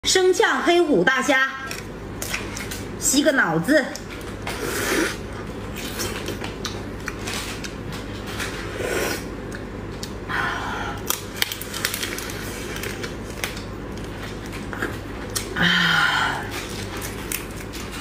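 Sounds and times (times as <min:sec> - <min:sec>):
wet sucking and slurping: 0:04.5 - 0:05.2.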